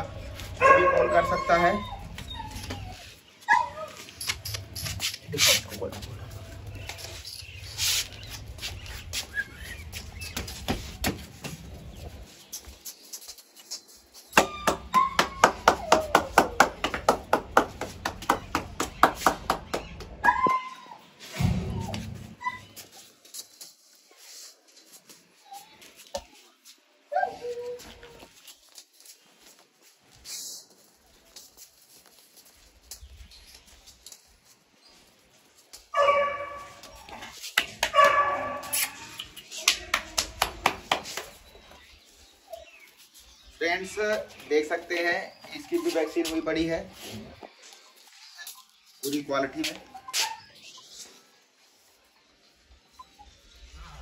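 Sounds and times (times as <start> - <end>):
puppy yapping: 14.4 - 16.7
hands clapping fast: 14.4 - 20.2, 37.4 - 38.2, 39.1 - 41.4.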